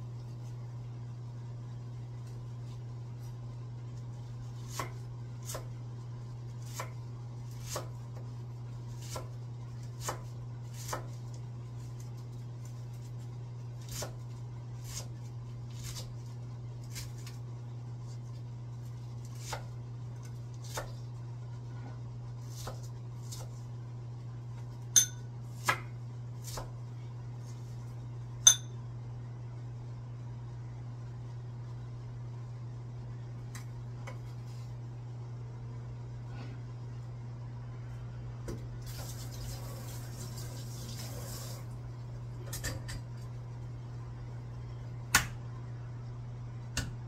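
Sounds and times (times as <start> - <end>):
steady low hum: 0.0 - 47.0
knife chopping on wooden board: 10.0 - 11.2.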